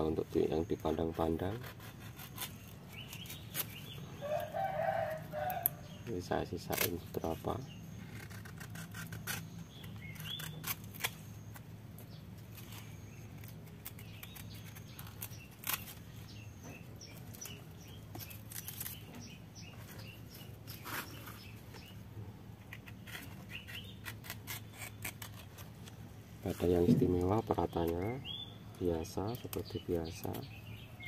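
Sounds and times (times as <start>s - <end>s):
birds chirping: 0.0s - 31.0s
hands handling plant: 9.8s - 28.3s, 29.0s - 30.6s
small knife cutting: 22.7s - 26.0s.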